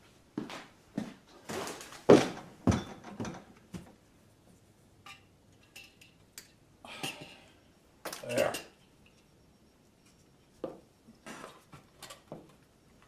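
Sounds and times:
tools knocking and thudding: 2.1s - 4.0s.

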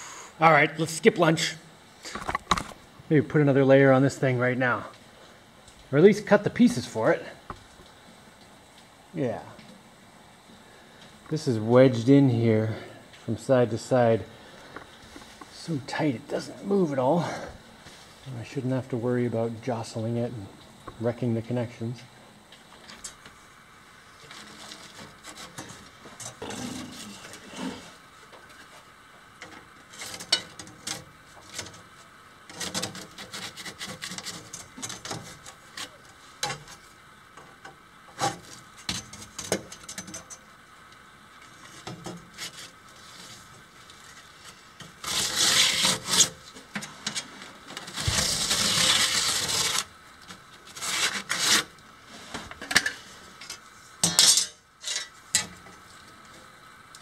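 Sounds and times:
hand tool scraping a panel: 24.3s - 27.9s, 32.5s - 36.0s, 45.0s - 46.4s, 50.7s - 51.7s.

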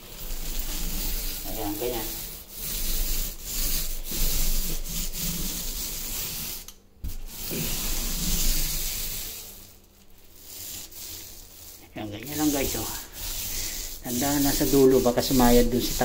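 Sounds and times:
paint roller swishing on wall: 0.0s - 16.0s.

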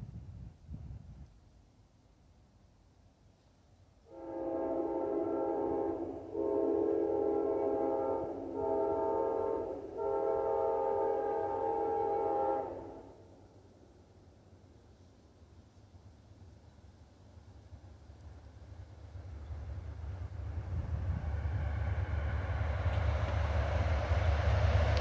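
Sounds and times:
train horn blasts: 4.1s - 13.3s.

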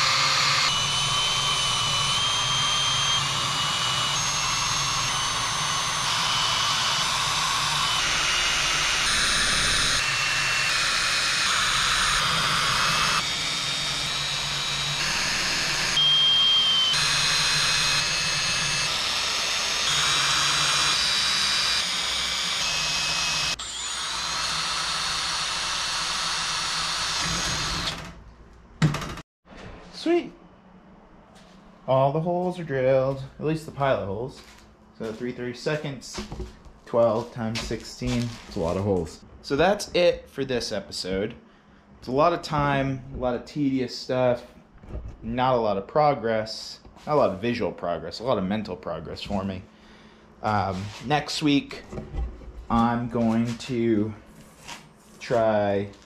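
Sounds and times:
cordless drill whining: 0.0s - 28.2s.

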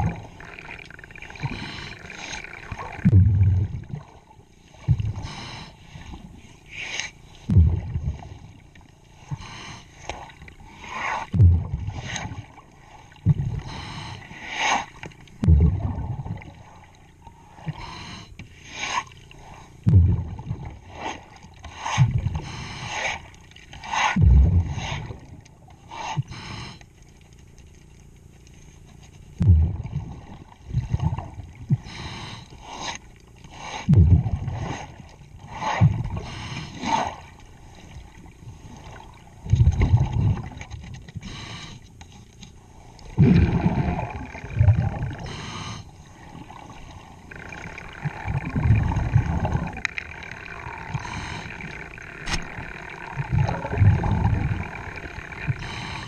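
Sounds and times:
exhaled bubbles rumbling: 0.0s - 6.4s, 7.3s - 9.3s, 10.2s - 14.0s, 15.2s - 17.8s, 19.3s - 22.6s, 23.3s - 25.8s, 29.4s - 32.1s, 33.9s - 41.1s, 42.7s - 56.0s.

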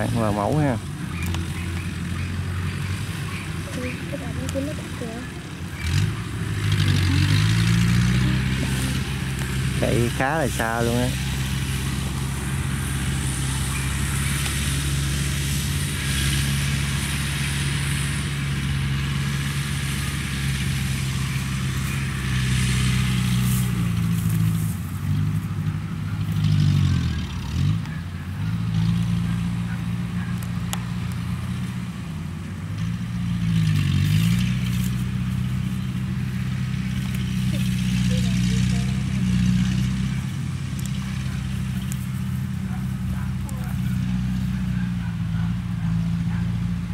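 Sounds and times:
motorized cart engine running: 0.0s - 46.9s.

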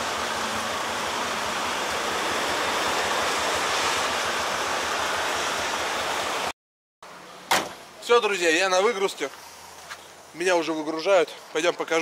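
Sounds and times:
tyre spray and rain hiss: 0.0s - 6.5s, 8.6s - 11.6s.

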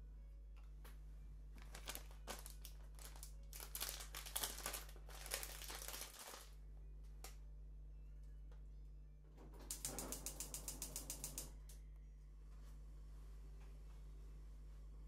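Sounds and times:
plastic packet crinkling: 1.6s - 6.6s.

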